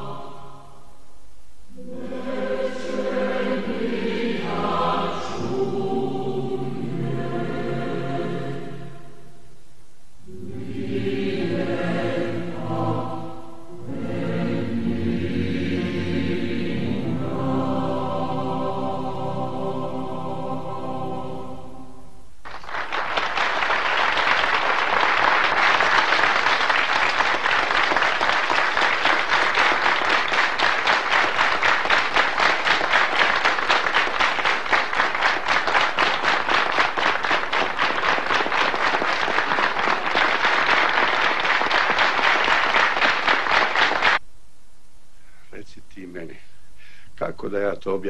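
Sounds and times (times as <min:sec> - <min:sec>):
choir singing held chord: 0:00.0 - 0:01.0, 0:01.7 - 0:09.4, 0:10.2 - 0:22.2, 0:23.2 - 0:44.2
audience applause: 0:22.4 - 0:44.2.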